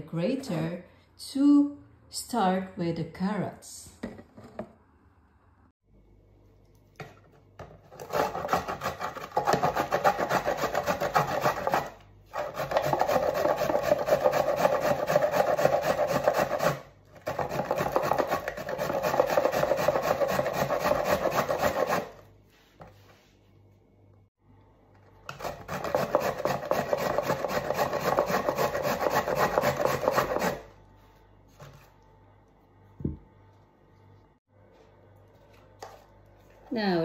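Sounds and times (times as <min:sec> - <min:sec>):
carrot grating on metal grater: 0:07.9 - 0:22.2, 0:25.3 - 0:30.7.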